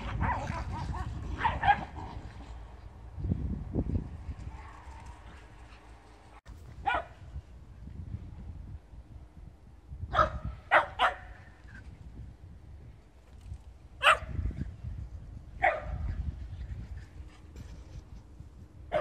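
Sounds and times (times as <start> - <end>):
dog barking: 6.8 - 7.1, 10.1 - 11.3, 14.0 - 14.3, 15.6 - 16.0.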